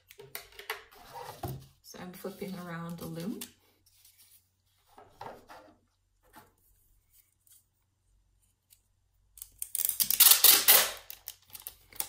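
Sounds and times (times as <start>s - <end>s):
adhesive tape pulled off roll: 8.6s - 12.0s.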